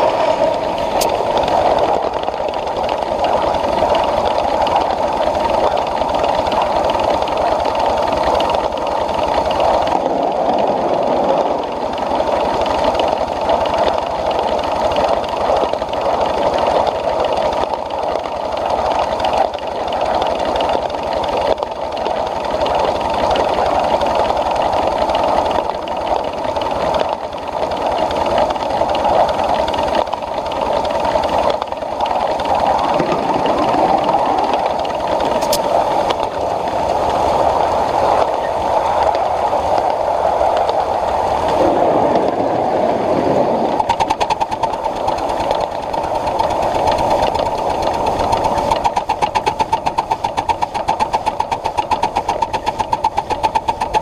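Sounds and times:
steam locomotive running: 0.0 - 41.7, 43.6 - 54.0
sharp clicks: 34.8 - 36.4, 43.8 - 54.0.

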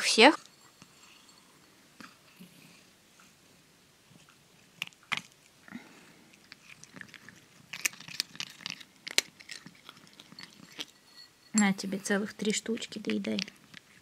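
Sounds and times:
cat chewing dry food: 4.0 - 11.1, 12.2 - 14.0.

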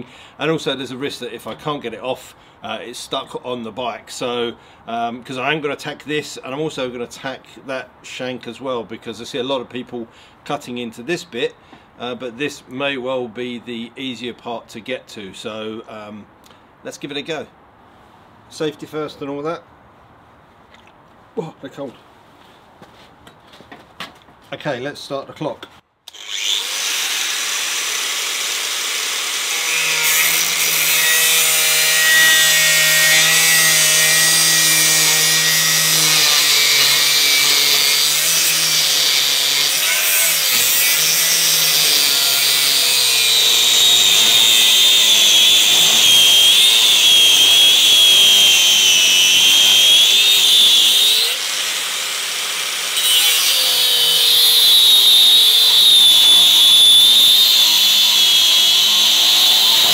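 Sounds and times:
angle grinder cutting metal: 26.1 - 59.9
high screech of grinding disc: 52.9 - 59.9.

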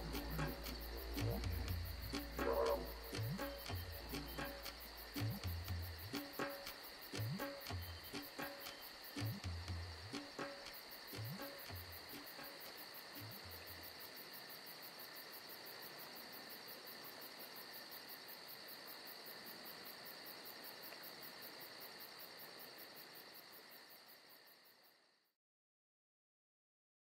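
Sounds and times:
steady high drone: 0.0 - 6.5
crickets and insects chirping: 0.0 - 25.3.

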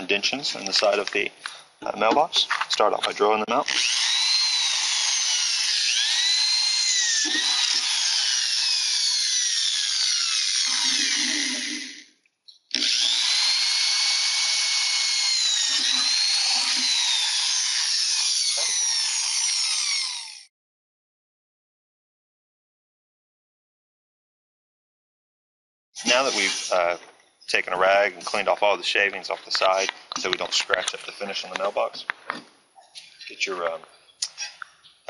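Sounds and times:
electric drill boring metal: 3.7 - 12.1, 12.7 - 20.5, 26.0 - 26.8.

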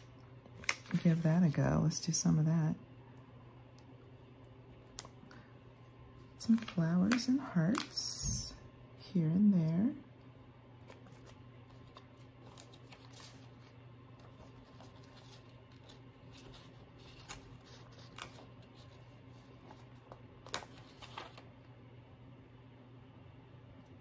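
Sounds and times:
low steady hum: 0.0 - 24.0
sticker sheet rustling: 10.9 - 21.5.

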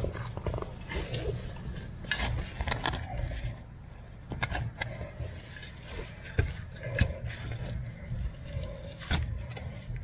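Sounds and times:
shovel digging into soil: 2.0 - 3.0.

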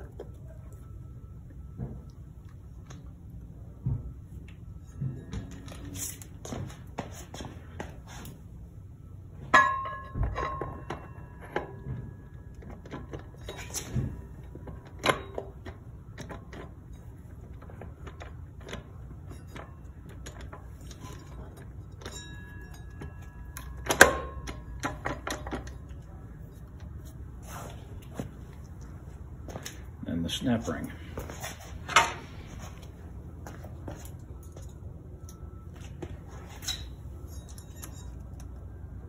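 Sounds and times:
sharp ringing metal clanks: 9.4 - 12.6, 19.2 - 25.9, 36.6 - 38.6
steel parts knocking and clinking: 9.5 - 26.1, 36.6 - 38.6.

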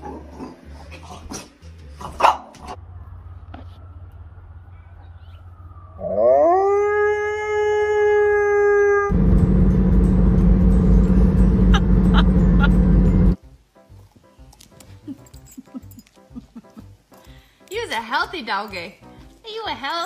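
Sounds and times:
road and engine noise: 2.6 - 6.0, 9.1 - 13.4
dog howling: 4.7 - 9.2.

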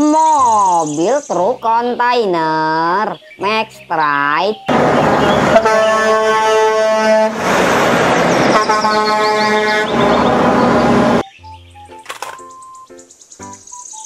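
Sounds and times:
truck engine and road noise: 3.1 - 12.9
truck air horn blasts: 4.7 - 11.2.

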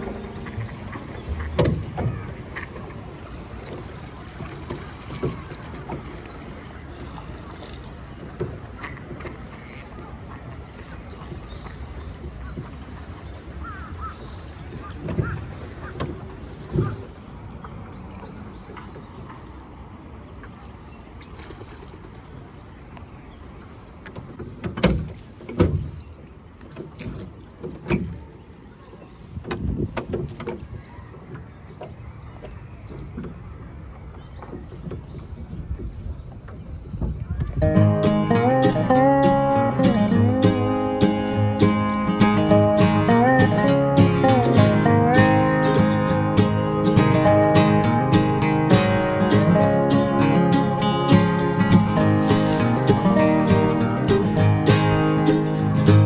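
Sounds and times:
oars knocking in oarlocks: 0.0 - 2.9
oars splashing in water: 0.0 - 56.0.

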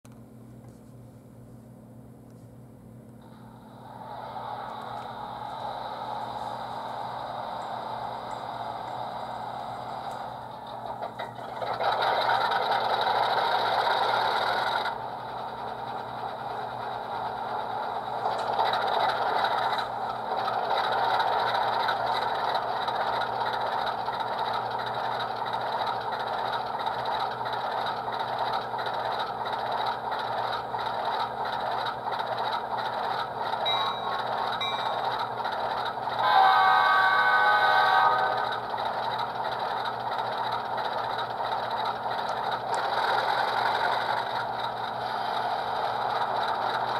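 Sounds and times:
diesel engine through small speaker: 3.2 - 46.9
train horn blast: 36.1 - 38.7.

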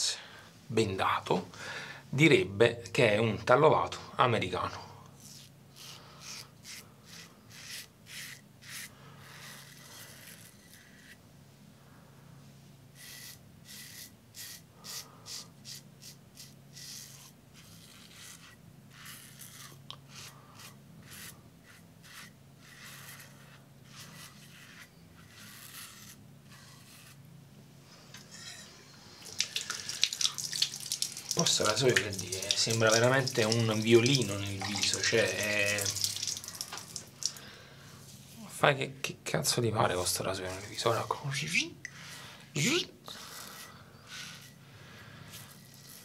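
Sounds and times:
razor scraping stubble: 5.1 - 11.2, 13.0 - 27.3, 28.1 - 37.4, 39.8 - 46.0.

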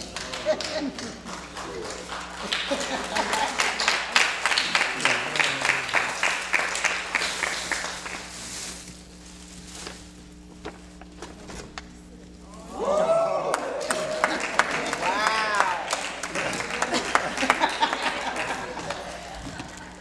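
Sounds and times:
congregation clapping rhythmically: 0.0 - 8.4, 13.5 - 20.0.

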